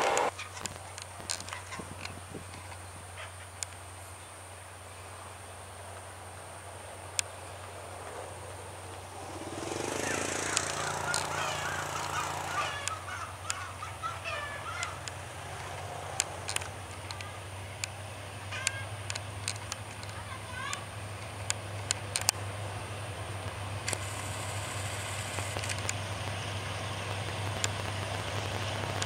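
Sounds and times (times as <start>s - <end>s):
locomotive engine drone: 0.0s - 0.4s, 4.4s - 29.0s
high wavering calls: 9.1s - 15.2s
sharp clicks: 9.5s - 13.6s, 14.8s - 18.0s.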